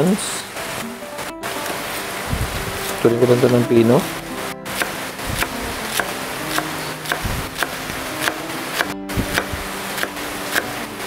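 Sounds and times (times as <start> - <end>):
background music: 0.0 - 11.0
knife chopping on wooden board: 4.7 - 10.7.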